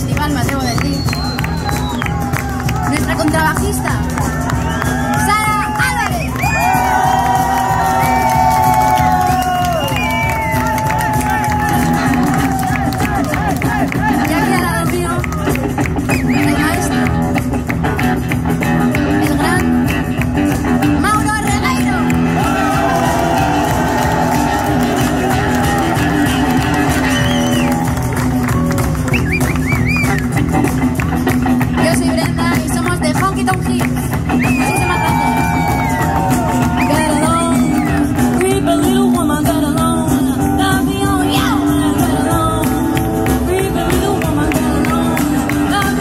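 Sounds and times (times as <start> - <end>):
rockabilly band playing: 0.0 - 46.0
woman singing: 14.1 - 15.6, 16.2 - 17.2, 18.9 - 20.1, 31.7 - 35.6, 36.6 - 46.0.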